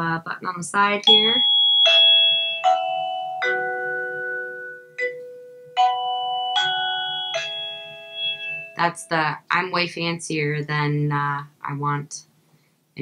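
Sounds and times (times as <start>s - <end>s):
doorbell chime tune: 1.1s - 9.0s.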